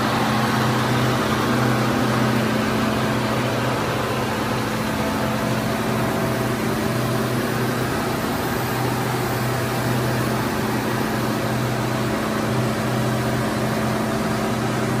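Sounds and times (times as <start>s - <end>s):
machine humming: 0.0s - 15.0s.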